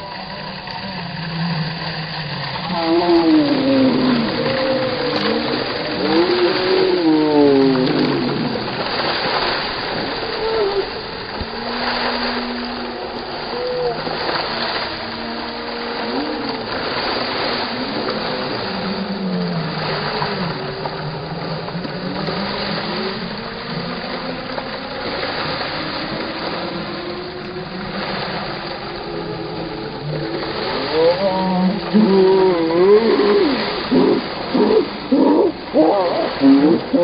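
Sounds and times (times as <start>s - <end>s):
fountain water splashing: 0.0s - 37.0s.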